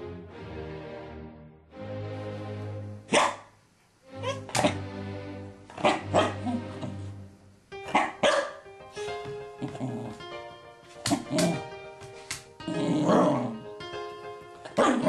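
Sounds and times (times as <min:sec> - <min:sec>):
background music: 0:00.0 - 0:03.4, 0:04.0 - 0:15.0
dog barking: 0:03.1 - 0:03.6, 0:04.2 - 0:04.8, 0:05.8 - 0:07.0, 0:07.9 - 0:08.7, 0:14.7 - 0:15.0.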